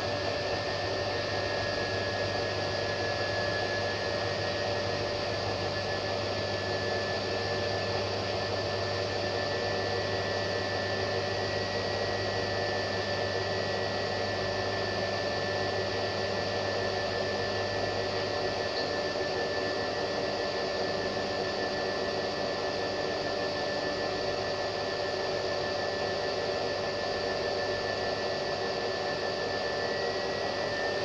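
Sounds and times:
washing machine running: 0.0s - 31.0s.

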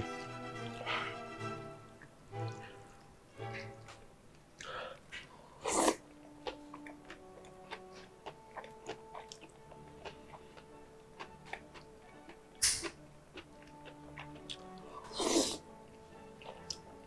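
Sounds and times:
soft background music: 0.0s - 17.0s
wet chewing clicks: 3.7s - 15.6s, 16.3s - 17.0s
noodles slurped: 5.6s - 11.9s, 13.8s - 15.6s.

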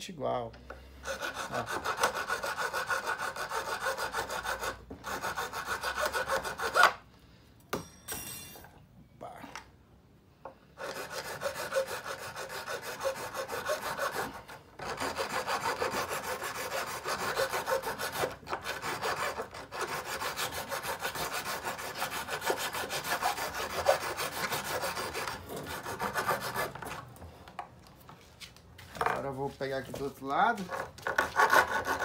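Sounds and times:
hacksaw cutting plastic: 1.0s - 7.0s, 10.8s - 27.1s, 30.6s - 32.0s.

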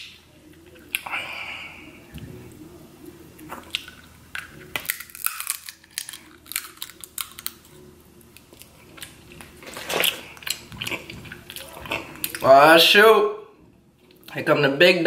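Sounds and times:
wet chewing and mouth smacking: 3.4s - 12.5s
crab shell clicks and crackles: 3.7s - 7.7s.

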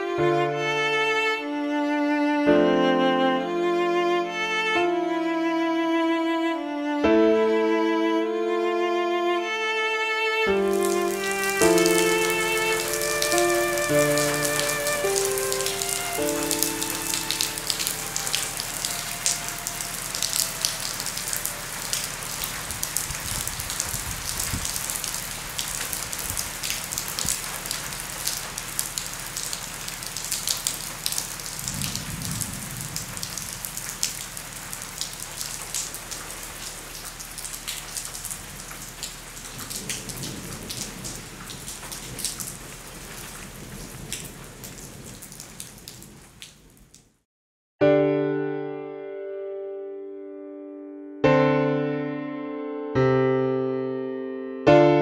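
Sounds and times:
heavy rain patter: 10.5s - 47.2s
low rumbles: 31.6s - 34.0s.

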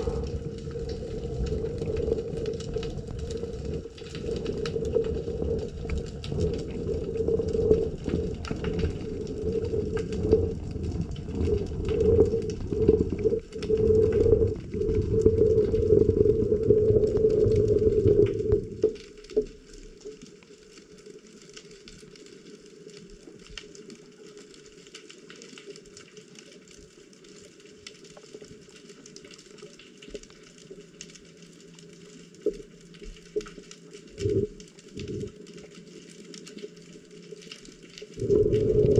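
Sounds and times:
underwater churning rumble: 0.0s - 19.5s, 34.1s - 35.5s, 38.1s - 38.9s.

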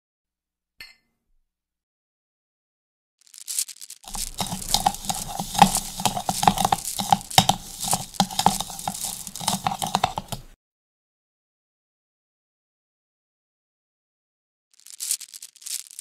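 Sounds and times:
whisk beating in a bowl: 4.1s - 10.6s.

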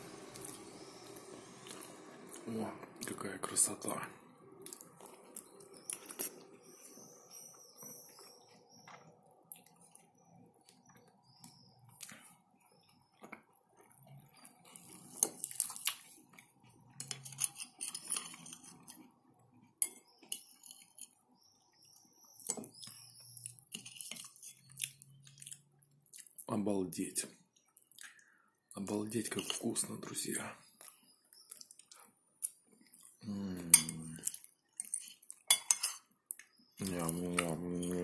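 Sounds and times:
fork scraping ceramic plate: 17.0s - 19.0s, 23.7s - 24.7s, 34.8s - 36.1s
soft eating clicks: 30.8s - 33.2s.

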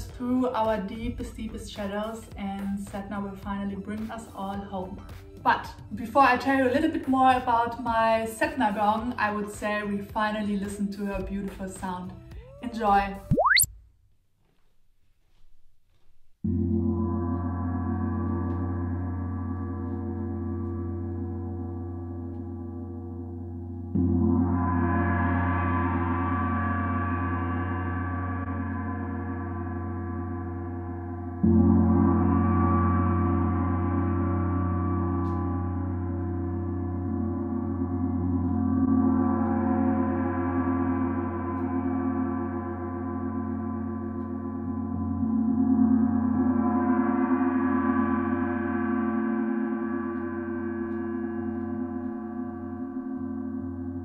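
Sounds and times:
gong ringing: 16.5s - 54.0s.

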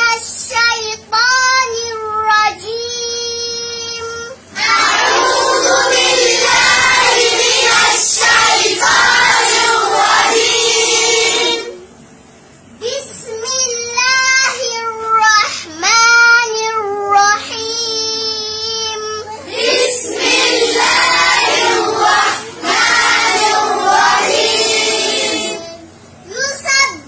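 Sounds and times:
girl's melodic recitation: 0.0s - 4.5s, 12.7s - 20.1s, 25.4s - 27.0s
children chanting recitation: 4.5s - 11.8s, 19.0s - 26.6s.

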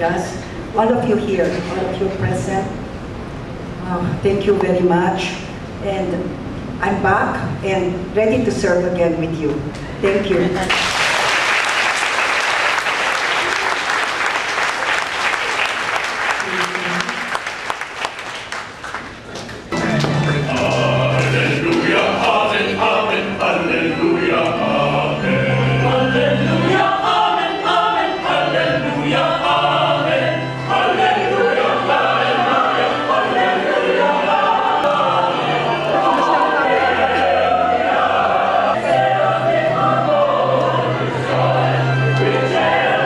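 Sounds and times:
church choir singing: 19.7s - 43.0s.

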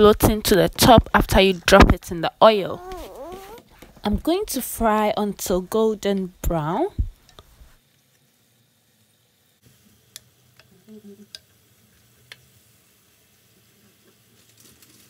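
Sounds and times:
dough frying in oil sizzling: 7.1s - 15.0s.

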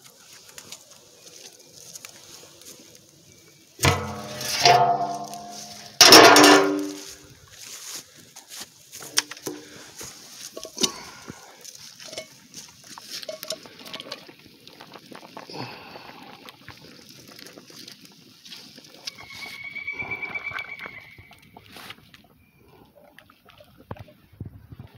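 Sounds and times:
metal pan knocking against drum: 3.8s - 7.1s.

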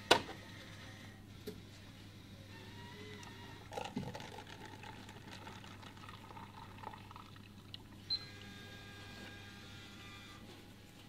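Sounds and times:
vending machine hum: 0.0s - 11.0s
liquid pouring into cup: 3.1s - 8.5s.

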